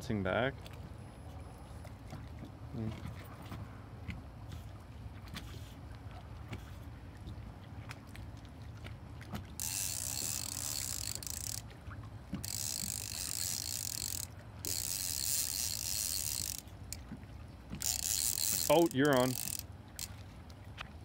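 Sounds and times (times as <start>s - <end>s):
fishing reel drag buzzing: 9.6s - 11.7s, 12.3s - 17.0s, 17.7s - 20.1s.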